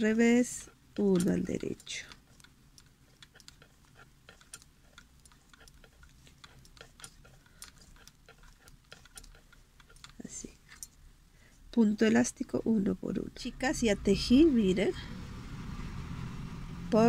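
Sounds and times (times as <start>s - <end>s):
knitting needles clicking: 0.0s - 11.0s.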